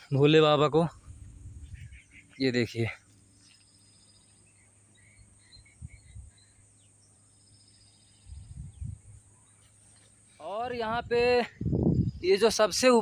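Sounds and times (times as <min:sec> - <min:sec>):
birds chirping softly: 0:00.0 - 0:13.0.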